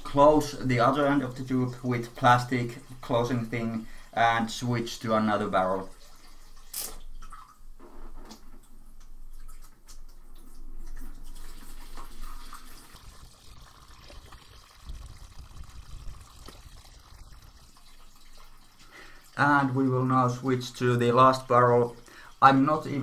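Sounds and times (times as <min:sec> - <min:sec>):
wine trickling into plastic bucket: 0:10.4 - 0:23.0.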